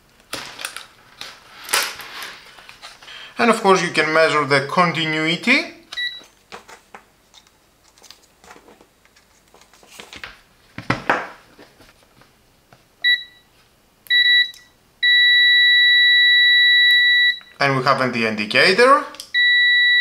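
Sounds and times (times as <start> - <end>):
meter continuity beeps: 5.9 - 6.3, 13.0 - 13.5, 14.1 - 17.6, 19.3 - 20.0.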